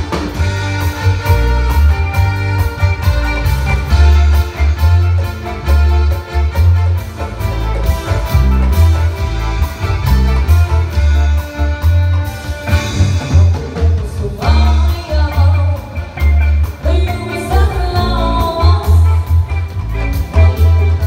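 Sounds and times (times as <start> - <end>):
live band music: 0.0 - 21.0
woman singing: 13.8 - 19.4.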